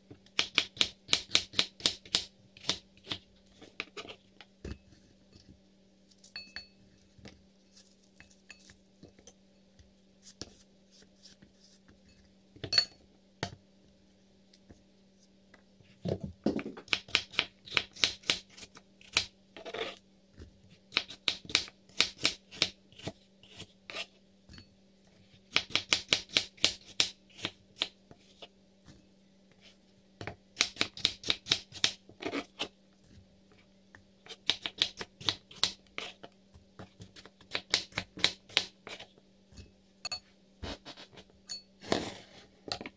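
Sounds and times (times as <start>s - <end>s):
faint steady hum: 0.0s - 42.9s.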